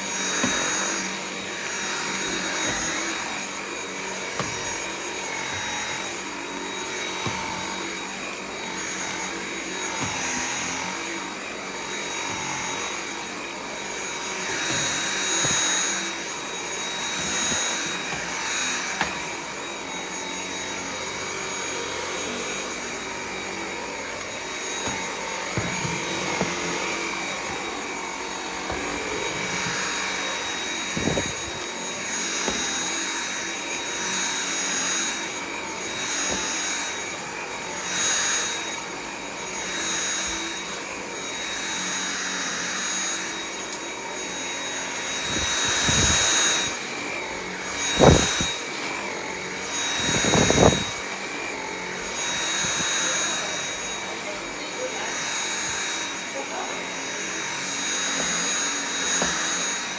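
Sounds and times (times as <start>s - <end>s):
stick vacuum running on carpet: 0.0s - 59.9s.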